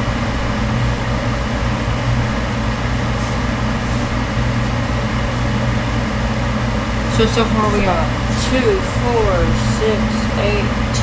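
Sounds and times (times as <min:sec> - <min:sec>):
fan motor humming: 0:00.0 - 0:11.0.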